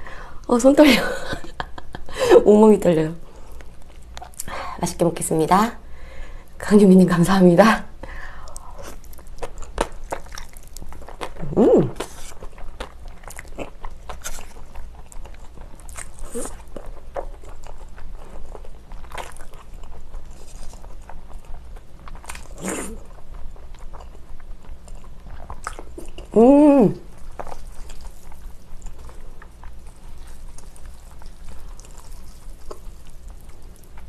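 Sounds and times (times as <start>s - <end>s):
wet chewing of noodles: 8.4s - 26.4s, 27.0s - 34.0s.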